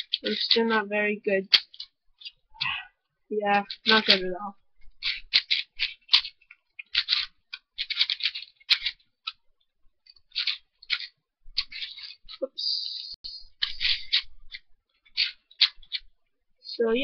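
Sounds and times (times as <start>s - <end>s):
puzzle cube clicking turns: 0.0s - 0.8s, 1.5s - 2.4s, 3.5s - 9.4s, 10.0s - 12.4s, 13.4s - 16.1s.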